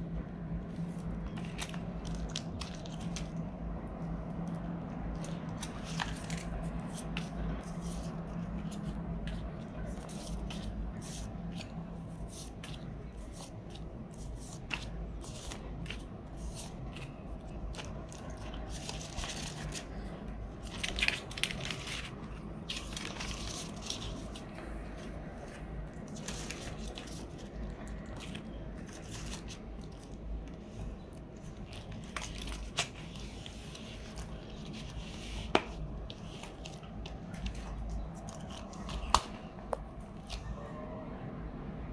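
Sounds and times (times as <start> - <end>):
low steady hum: 0.0 - 41.9
plastic pouches crinkling: 14.4 - 35.2.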